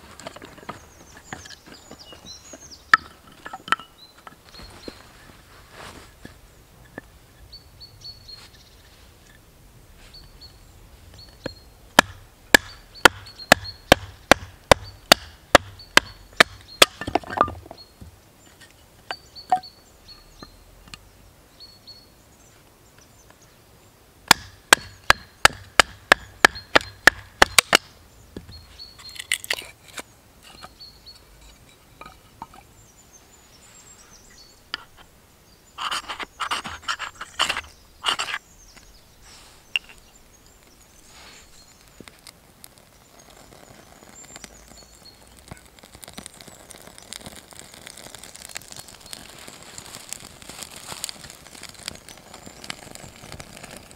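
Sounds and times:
wood cracking and rustling: 0.0s - 6.4s, 41.6s - 53.9s.

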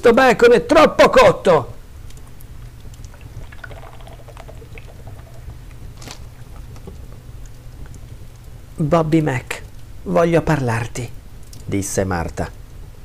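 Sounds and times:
wood fire crackling: 0.0s - 13.0s
low hum: 1.8s - 8.8s.

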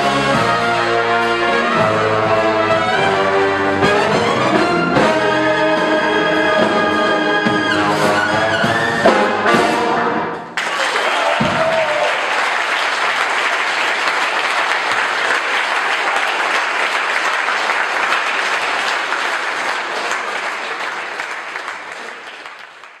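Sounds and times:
audience applauding: 10.6s - 23.0s.

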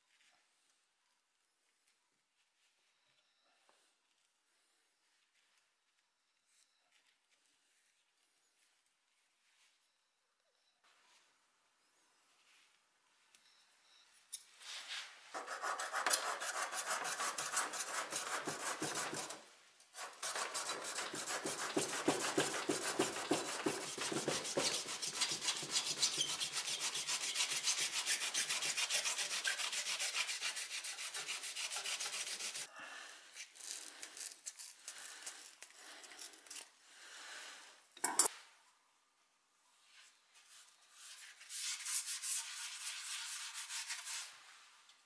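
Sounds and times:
handsaw cutting hair: 20.0s - 32.7s.

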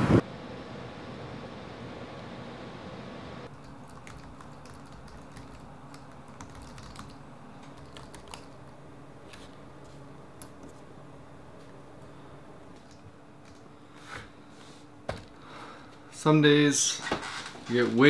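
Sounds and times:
laptop keyboard typing: 3.5s - 8.7s.

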